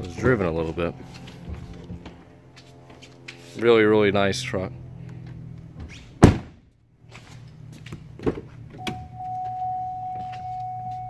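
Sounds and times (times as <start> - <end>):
steady high tone: 0.0 - 5.0
car door shutting with thump: 5.8 - 6.6.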